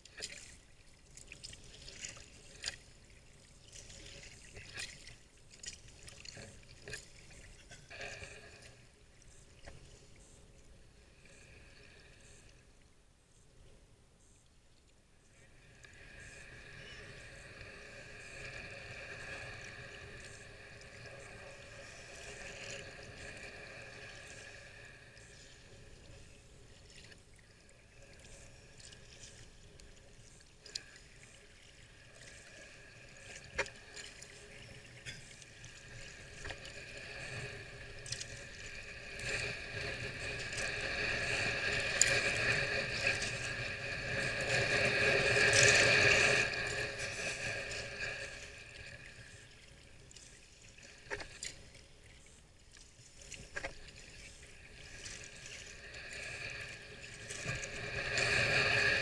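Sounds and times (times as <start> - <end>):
paddle strokes splashing: 0.0 - 7.6
water lapping against hull: 0.0 - 12.9, 14.2 - 59.0.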